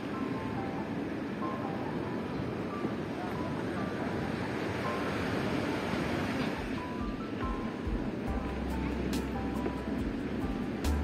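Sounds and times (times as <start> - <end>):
steady rushing noise: 0.0 - 11.0
melody of high single notes: 6.7 - 11.0.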